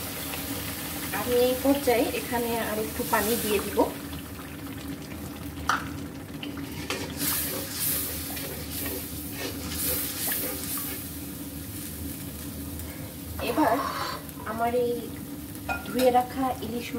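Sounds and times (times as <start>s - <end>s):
spice paste sizzling and bubbling: 0.0s - 16.9s
metal spatula scraping a pan: 6.8s - 11.0s, 13.4s - 14.2s.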